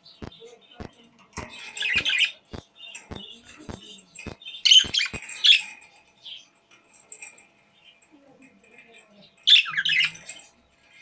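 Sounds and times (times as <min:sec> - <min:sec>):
budgerigars chirping: 0:00.0 - 0:06.5, 0:09.5 - 0:10.3
sharp regular clicking: 0:00.2 - 0:05.3.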